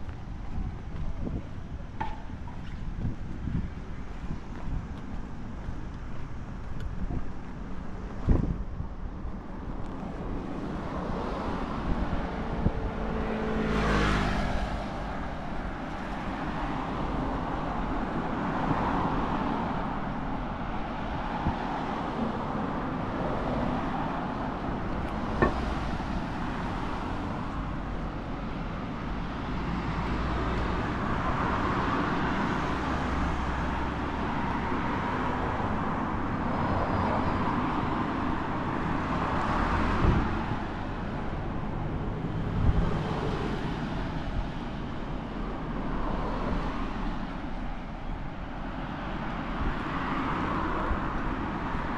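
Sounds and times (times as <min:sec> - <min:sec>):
road traffic passing: 0:00.0 - 0:51.9
vehicle passing by: 0:10.2 - 0:15.4.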